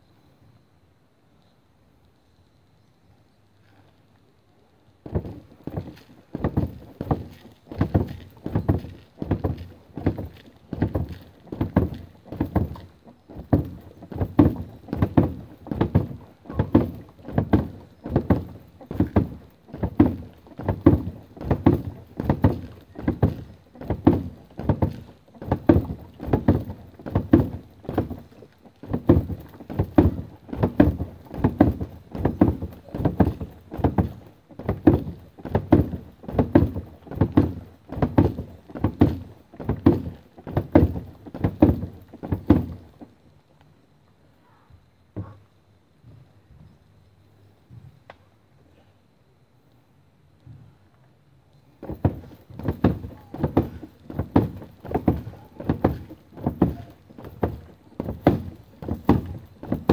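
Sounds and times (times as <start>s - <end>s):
dull thuds: 5.0s - 43.2s, 45.1s - 45.4s, 51.8s - 59.9s.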